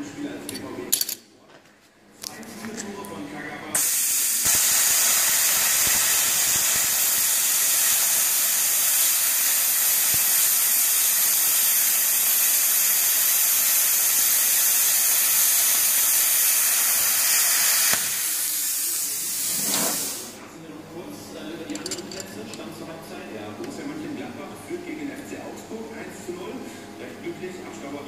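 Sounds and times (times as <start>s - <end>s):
plasma cutter hissing: 3.8s - 20.4s.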